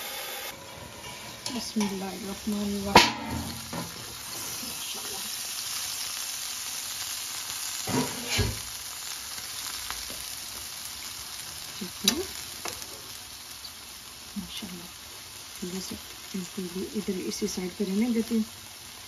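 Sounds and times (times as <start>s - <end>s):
meat sizzling in a frying pan: 0.0s - 19.0s
tongs clicking on skewers: 12.0s - 12.8s.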